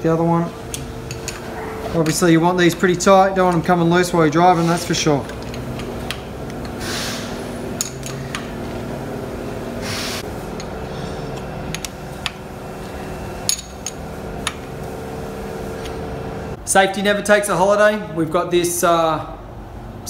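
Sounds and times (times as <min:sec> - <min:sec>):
spanner clinking on metal fittings: 0:00.7 - 0:03.7, 0:07.8 - 0:08.5, 0:13.5 - 0:14.6.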